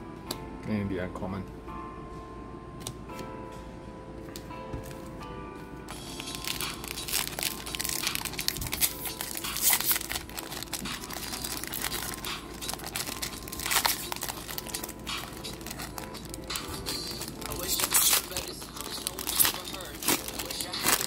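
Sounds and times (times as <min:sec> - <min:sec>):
foil wrapper crinkling and tearing: 0:05.9 - 0:21.0.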